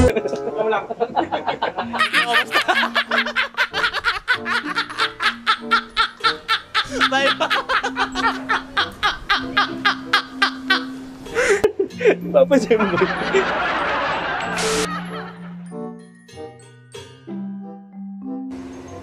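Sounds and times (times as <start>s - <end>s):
men laughing hard: 0.0s - 15.7s
background music: 0.0s - 19.0s.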